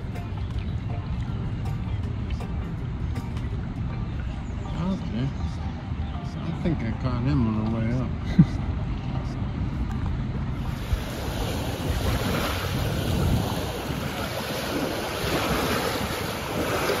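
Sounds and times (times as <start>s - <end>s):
wind blowing across microphone: 8.7s - 17.0s
waves washing against shore: 10.4s - 17.0s.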